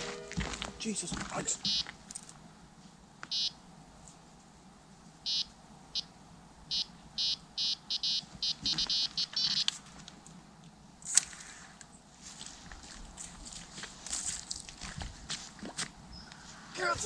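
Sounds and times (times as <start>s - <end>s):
fishing bite alarm bleeping: 1.6s - 1.9s, 6.7s - 9.6s.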